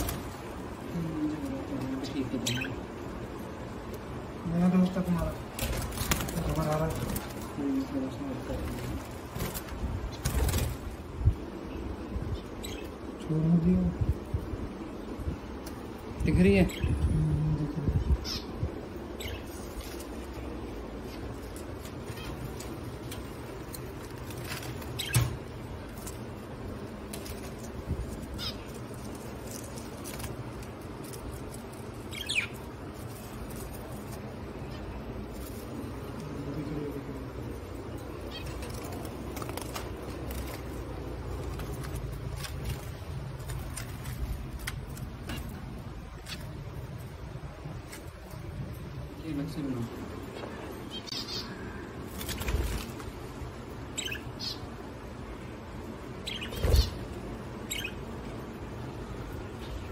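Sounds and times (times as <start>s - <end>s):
low steady hum: 0.0s - 59.9s
budgerigars chirping: 28.3s - 28.8s, 32.1s - 32.7s, 54.0s - 54.7s, 56.2s - 58.0s.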